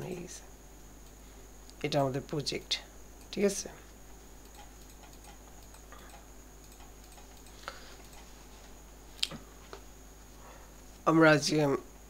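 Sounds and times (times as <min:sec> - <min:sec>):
faint hiss and hum: 0:00.0 - 0:12.0
computer mouse clicking: 0:04.4 - 0:09.3.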